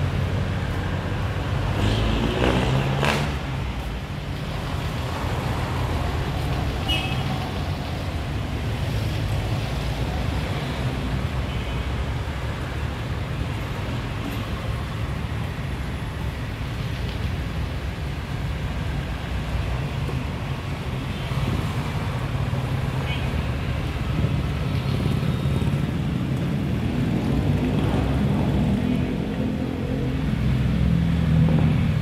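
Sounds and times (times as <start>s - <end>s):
traffic engines rumbling: 0.0s - 32.0s
vehicle engine revving: 1.6s - 3.7s.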